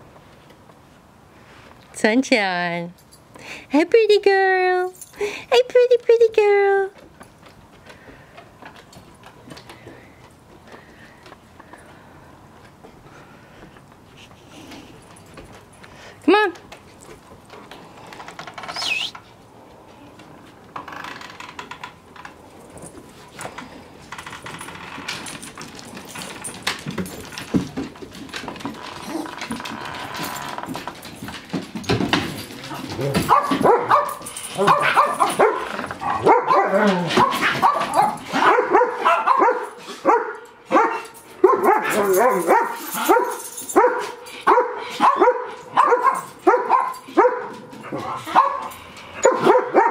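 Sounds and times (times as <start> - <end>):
dog claws on wooden deck: 6.9 - 49.9
brief high squeak: 18.7 - 19.2
dog tags jingling: 24.3 - 29.2, 30.2 - 49.9.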